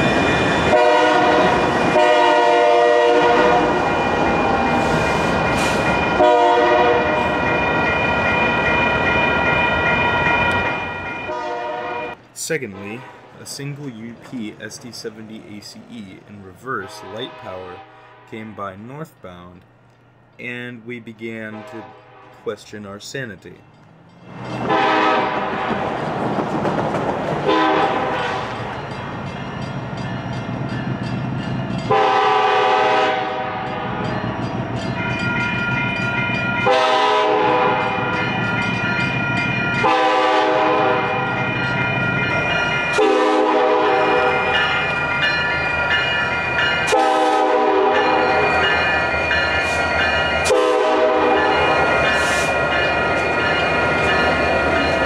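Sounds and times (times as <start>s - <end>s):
locomotive air horn blasts: 0.7s - 3.8s, 6.2s - 7.4s, 11.3s - 13.2s, 16.7s - 18.8s, 21.5s - 22.4s, 24.7s - 25.8s, 27.4s - 28.6s, 31.9s - 34.0s, 36.6s - 38.1s, 39.8s - 41.2s, 43.0s - 44.6s, 46.9s - 48.5s, 50.4s - 51.6s
diesel engine rumbling: 12.2s - 21.5s.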